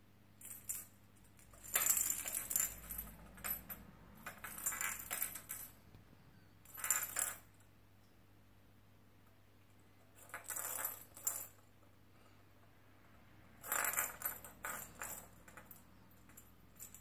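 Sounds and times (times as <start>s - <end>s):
cat ball bell jingling: 0.4s - 5.8s
ball rolling on tile floor: 0.5s - 7.7s, 10.0s - 11.7s, 13.6s - 17.0s.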